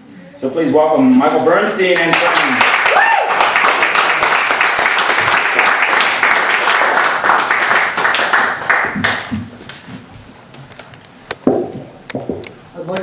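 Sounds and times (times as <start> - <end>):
audience applauding: 2.0 - 9.4.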